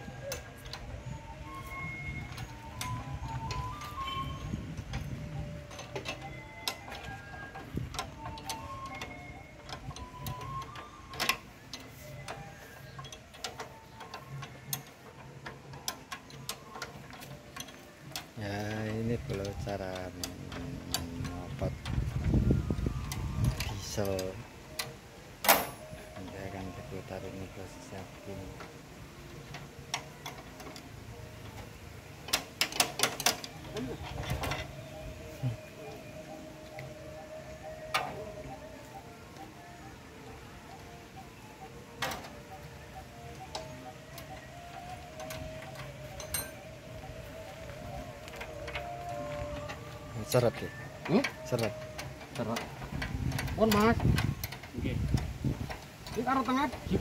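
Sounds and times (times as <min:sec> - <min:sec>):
wrench clicking on metal frame: 0:00.1 - 0:26.5, 0:28.5 - 0:34.8, 0:41.6 - 0:46.8, 0:47.7 - 0:57.0
metal tool clinks: 0:46.2 - 0:46.6.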